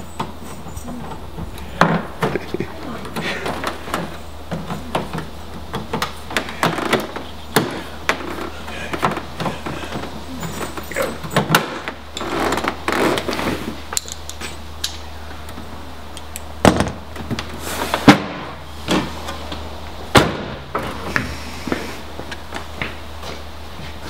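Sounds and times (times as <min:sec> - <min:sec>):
steady low hum: 0:00.0 - 0:24.0
car tailgate banging shut: 0:20.1 - 0:20.7.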